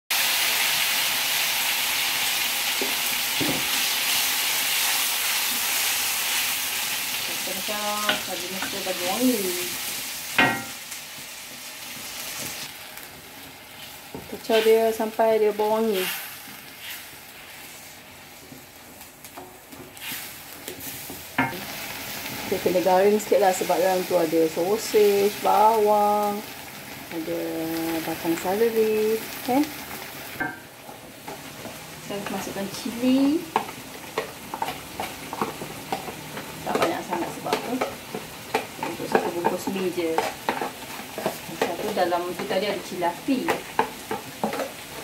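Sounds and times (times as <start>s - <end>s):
food sizzling in hot oil: 0.1s - 45.0s
wooden spatula stirring: 30.9s - 45.0s.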